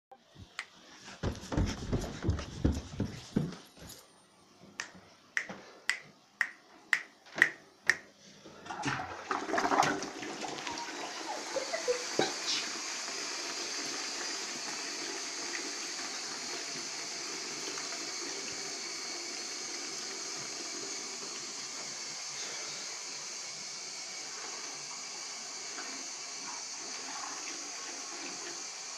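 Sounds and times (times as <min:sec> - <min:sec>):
toilet flushing: 0:08.5 - 0:28.9
water running into bowl: 0:08.6 - 0:22.4, 0:23.0 - 0:28.9.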